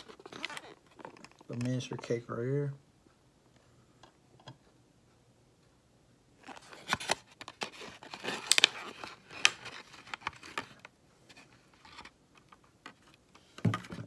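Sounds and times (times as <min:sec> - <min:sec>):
plastic tray crinkling and crackling: 0:00.0 - 0:02.3, 0:06.4 - 0:14.0.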